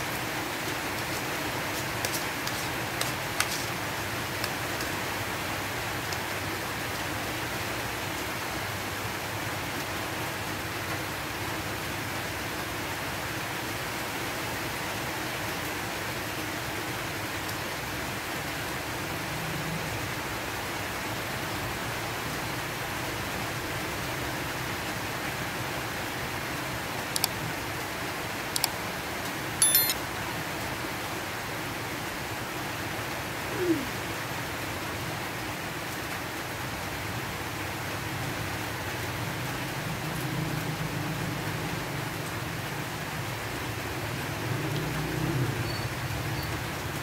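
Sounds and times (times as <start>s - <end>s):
fork and spoon clicking on plate: 29.6s - 30.0s.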